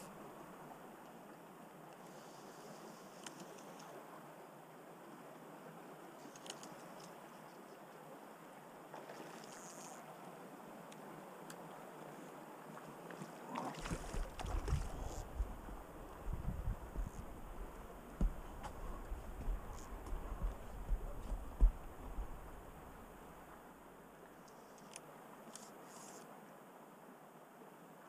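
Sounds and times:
stream flowing: 0.0 - 28.0
faint ticks: 1.9 - 4.0, 6.2 - 7.8, 9.4 - 10.0, 10.8 - 12.2, 24.4 - 26.3
low rumbling bumps: 14.1 - 23.0.

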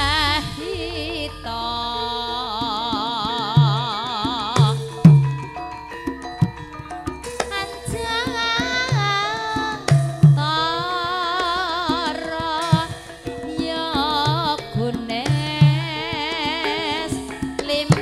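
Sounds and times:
person singing long wavering notes: 0.0 - 5.0
hand drum strokes: 0.0 - 18.0
ringing gamelan tones: 0.0 - 18.0.

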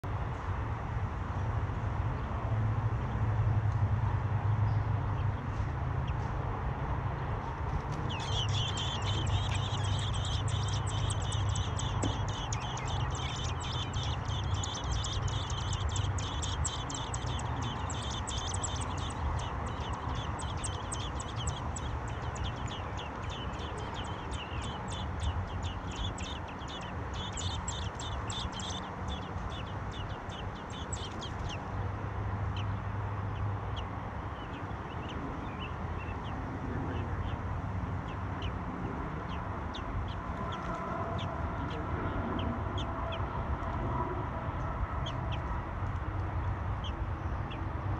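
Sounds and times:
nestlings peeping: 7.4 - 37.4
low steady hum: 7.6 - 31.8.

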